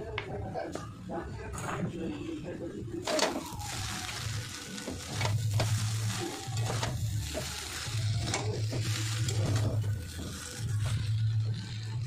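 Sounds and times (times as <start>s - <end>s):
noodles sizzling in oil: 3.0s - 12.0s.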